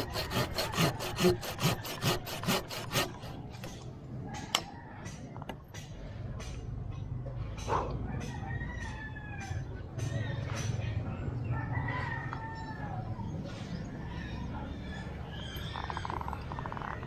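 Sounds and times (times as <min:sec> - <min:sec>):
rooster crowing: 0:08.0 - 0:09.7, 0:11.4 - 0:13.1.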